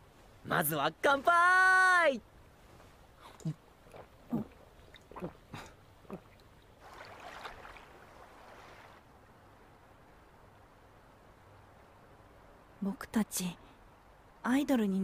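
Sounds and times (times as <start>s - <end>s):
soft hiss: 0.0s - 15.0s
person gulping a drink: 3.4s - 6.5s.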